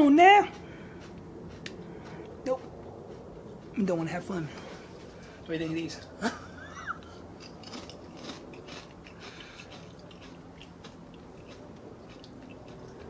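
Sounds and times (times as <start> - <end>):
people chewing potato chips: 0.4 - 3.8, 6.3 - 13.0.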